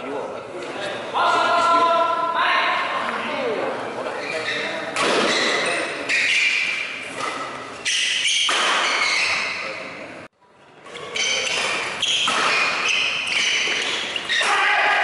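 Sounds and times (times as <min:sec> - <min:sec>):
shoe squeaks: 0:04.1 - 0:09.8, 0:10.9 - 0:14.6
racket hitting shuttlecock: 0:06.4 - 0:09.2, 0:11.0 - 0:15.0
spectators shouting: 0:14.3 - 0:15.0.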